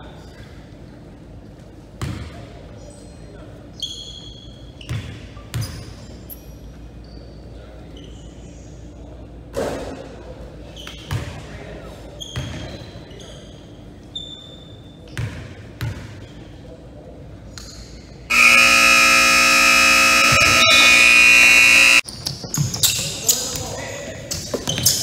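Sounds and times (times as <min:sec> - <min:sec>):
scoreboard buzzer: 0:18.3 - 0:22.0.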